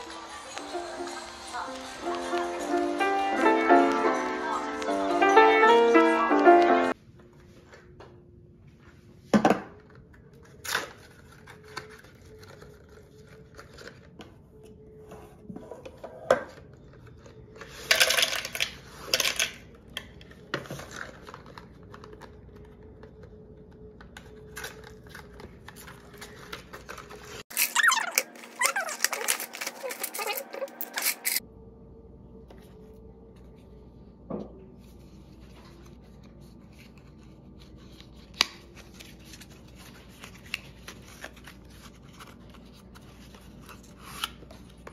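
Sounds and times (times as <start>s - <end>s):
packaging crinkling and rustling: 9.8s - 14.2s, 24.0s - 31.4s.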